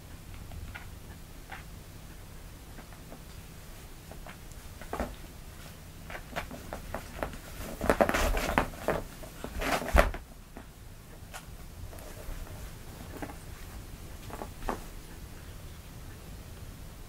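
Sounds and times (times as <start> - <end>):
soft thumps and rustles: 4.1 - 10.7, 11.3 - 14.9.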